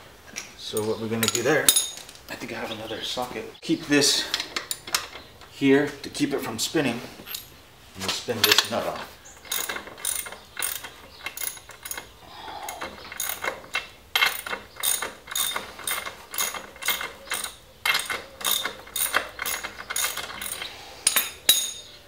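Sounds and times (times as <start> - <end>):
socket ratchet clicking: 9.4 - 21.8.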